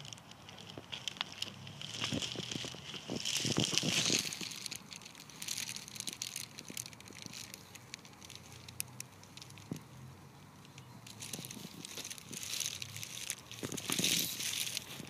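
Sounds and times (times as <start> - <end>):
footsteps crunching on dirt: 0.0 - 7.4.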